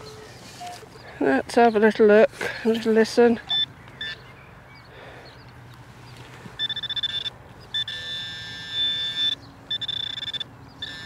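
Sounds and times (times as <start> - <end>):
metal detector rapid beeping: 3.5 - 4.2, 6.6 - 11.0.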